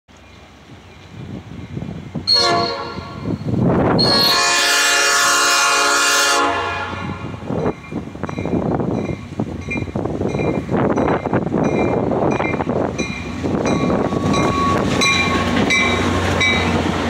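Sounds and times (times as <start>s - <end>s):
train rumbling: 0.1s - 17.0s
locomotive air horn blasts: 2.3s - 3.3s, 4.0s - 7.4s.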